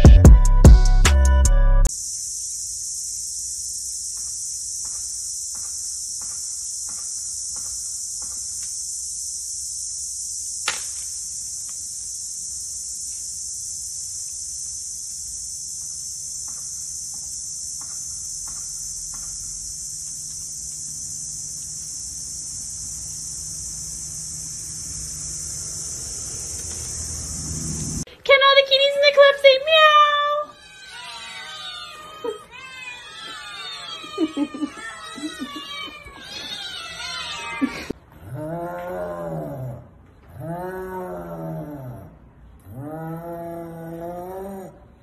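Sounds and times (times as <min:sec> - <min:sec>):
music: 0:00.0 - 0:01.9
high-pitched insect drone: 0:01.9 - 0:28.1, 0:30.4 - 0:38.0.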